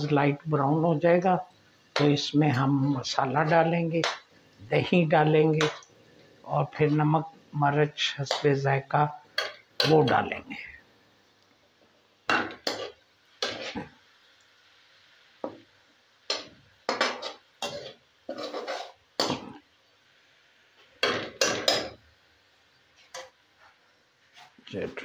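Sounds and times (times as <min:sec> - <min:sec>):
frying oil hiss: 0:00.0 - 0:25.0
metal spoon scraping a pan: 0:12.3 - 0:13.9, 0:16.3 - 0:19.6, 0:21.0 - 0:22.0.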